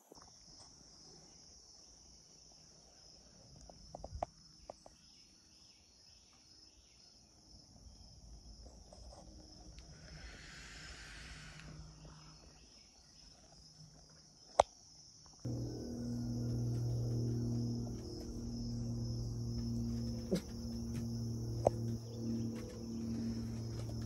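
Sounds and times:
high-pitched insect chorus: 15.2s - 24.0s.

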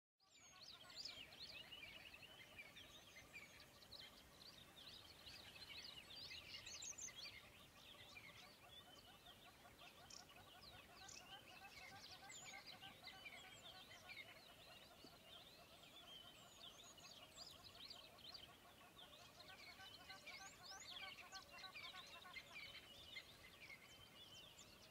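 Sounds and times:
many birds chirping: 0.2s - 24.9s.

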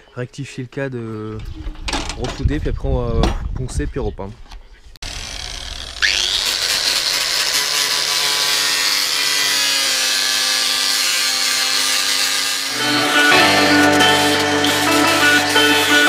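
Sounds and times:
angle grinder grinding metal: 5.0s - 16.0s
music: 12.7s - 16.0s.

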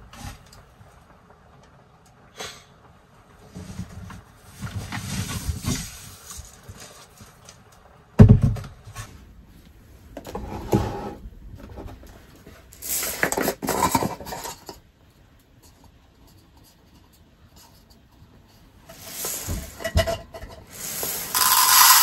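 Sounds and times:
rubbing and clatter of containers: 3.4s - 7.7s, 10.2s - 22.0s.

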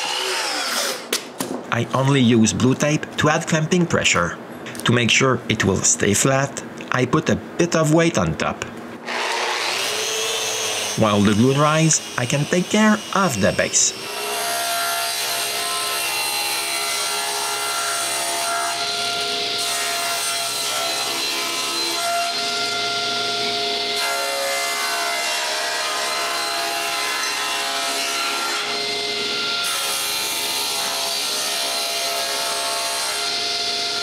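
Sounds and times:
table saw cutting plywood: 0.0s - 1.2s, 9.0s - 34.0s.

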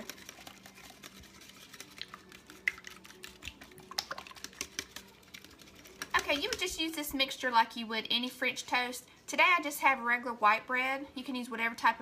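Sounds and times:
whisk clicking against bowl: 0.0s - 7.0s.

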